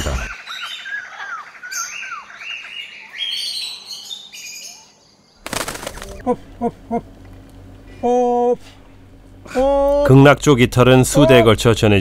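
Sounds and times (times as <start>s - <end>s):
forest birds chirping and whistling: 0.0s - 6.3s.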